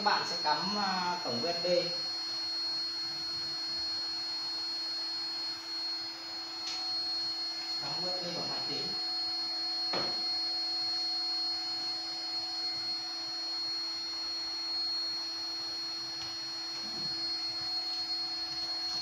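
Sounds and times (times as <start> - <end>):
electrical hum with high whine: 0.0 - 19.0.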